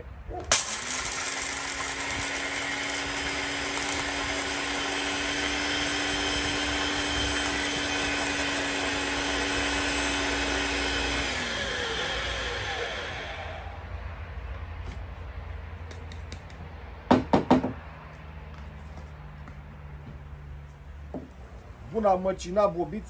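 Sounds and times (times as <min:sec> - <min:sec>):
blender grinding dry kibble: 0:00.5 - 0:13.6
blender motor winding down: 0:00.5 - 0:13.8.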